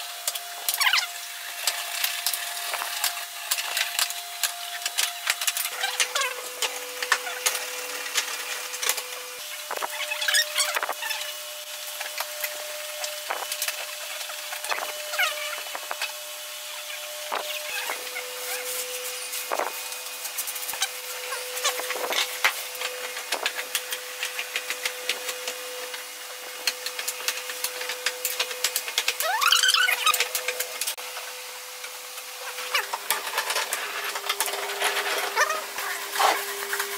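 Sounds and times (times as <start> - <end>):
thin hum: 8.7 - 26.7
plastic spreader scraping wood: 32.6 - 36.9.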